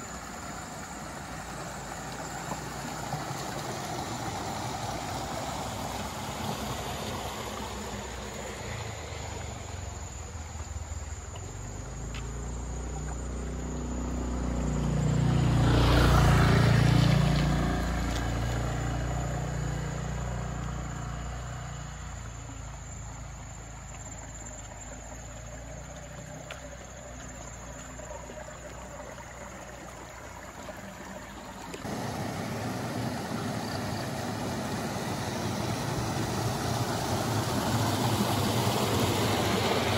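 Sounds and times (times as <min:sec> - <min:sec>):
water spilling over weirs: 0:00.0 - 0:39.9
motor scooter passing: 0:11.5 - 0:22.7, 0:31.8 - 0:39.9.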